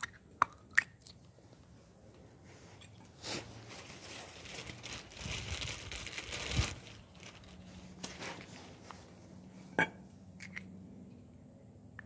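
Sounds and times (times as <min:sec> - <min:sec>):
crinkling and rustling of parts: 0:01.5 - 0:09.2.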